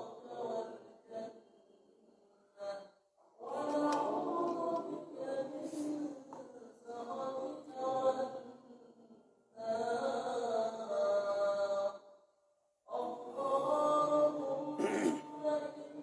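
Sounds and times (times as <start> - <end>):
congregation chanting in unison: 0.0 - 1.4, 2.6 - 8.7, 12.9 - 16.0.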